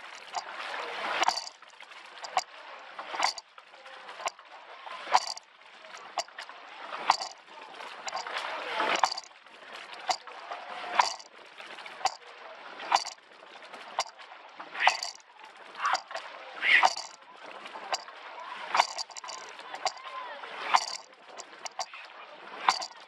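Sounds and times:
water splashing along hull: 0.0 - 23.0
oars knocking in oarlocks: 1.2 - 1.6, 2.2 - 2.5, 3.1 - 3.4, 5.1 - 5.4, 6.0 - 6.5, 7.1 - 7.4, 8.0 - 8.3, 8.9 - 9.3, 11.0 - 11.3, 12.9 - 13.2, 14.0 - 14.2, 14.8 - 15.2, 15.9 - 16.2, 16.8 - 17.2, 18.8 - 20.0, 20.7 - 22.0, 22.7 - 23.0.

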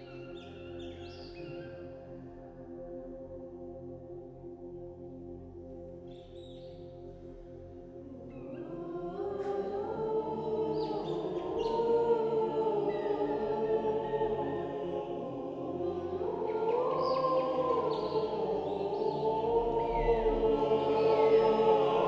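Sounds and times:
boys' choir singing: 8.1 - 22.0.

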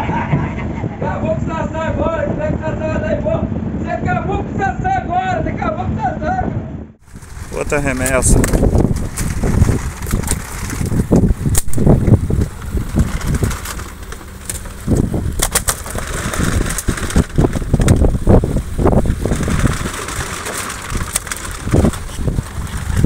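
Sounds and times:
low rumble: 0.0 - 23.0
fish thudding and slapping: 7.1 - 23.0.

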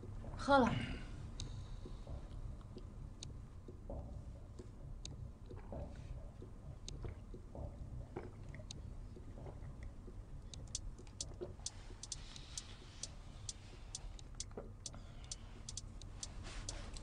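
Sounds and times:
faint high clicks: 10.5 - 17.0.

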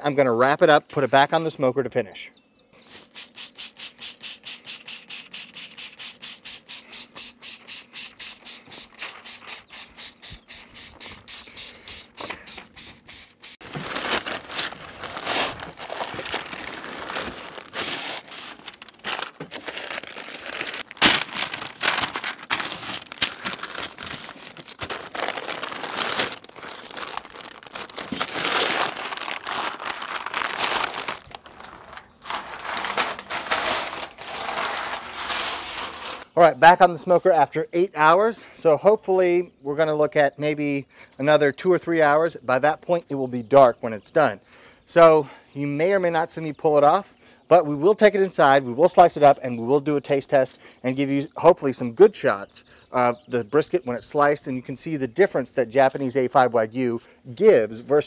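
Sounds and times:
spray bottle squirting: 2.9 - 13.6
stiff paper crinkling: 2.9 - 36.4.

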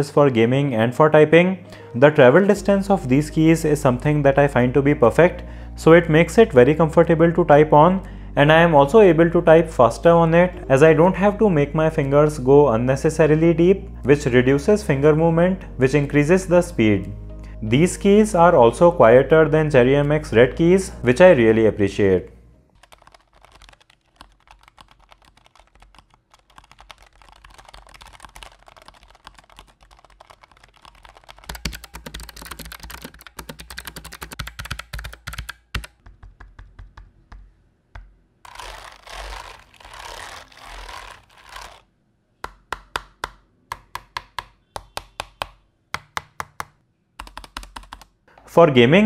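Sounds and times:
mechanical keyboard typing: 22.8 - 37.4, 43.8 - 48.2.

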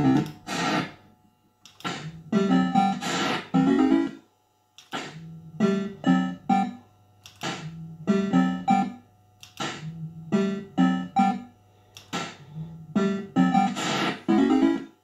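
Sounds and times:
steady low hum: 0.0 - 15.0
fruit machine electronic tune: 1.9 - 4.2, 5.0 - 11.6, 12.4 - 15.0.

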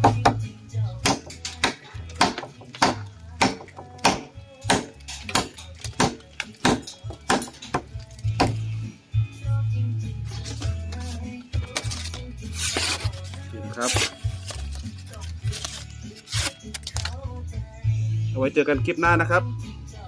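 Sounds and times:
background guitar music: 0.0 - 20.0
knife chopping into wood: 1.0 - 7.6.

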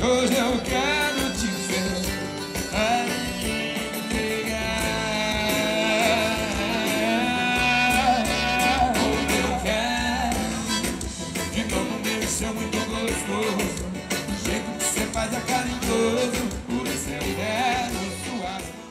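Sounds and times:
acoustic guitar and band: 0.0 - 18.9
man singing long note: 2.8 - 10.4.

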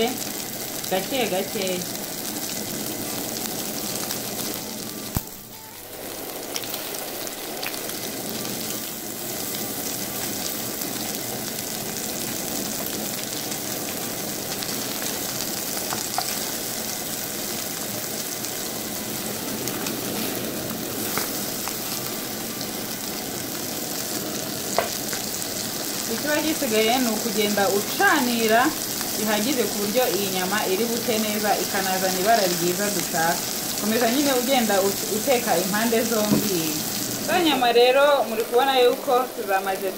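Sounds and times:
burger patties sizzling in pan: 0.0 - 39.9
wooden spatula tapping and scraping: 24.8 - 25.2.

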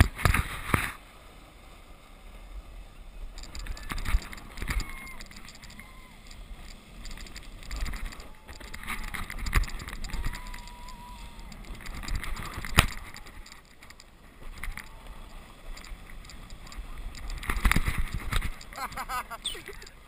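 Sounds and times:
wind on microphone: 3.2 - 19.8
distant voices calling out: 4.6 - 11.9.

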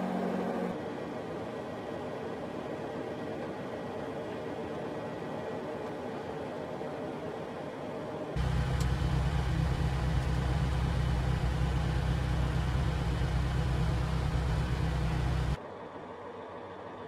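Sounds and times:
truck diesel engine drone: 0.0 - 0.8, 8.4 - 15.6.

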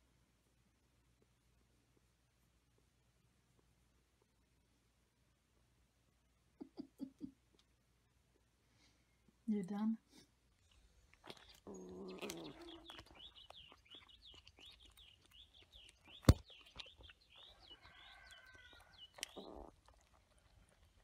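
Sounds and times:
kitten crunching dry kibble: 10.5 - 21.0
small bird chirping: 10.6 - 21.0.

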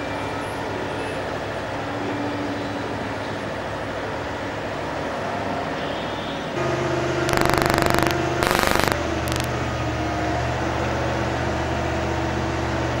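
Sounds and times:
rapid mechanical hammering: 7.3 - 9.5.

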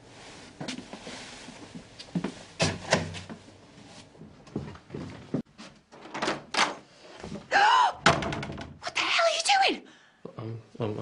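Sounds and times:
door knocks and thuds: 8.0 - 8.8.

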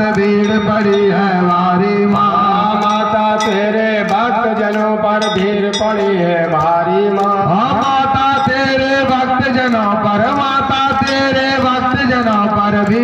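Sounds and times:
man singing into a microphone: 0.0 - 13.0
small hand cymbals clinking: 0.2 - 6.6.

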